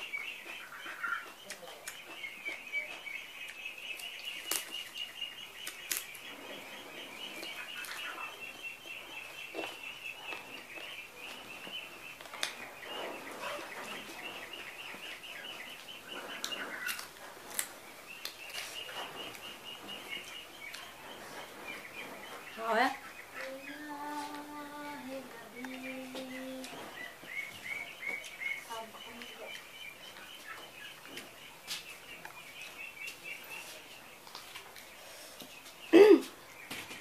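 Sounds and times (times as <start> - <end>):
birds chirping: 0.0 - 37.0
fingers clicking and rustling: 1.2 - 4.9, 5.6 - 6.2, 16.3 - 19.5.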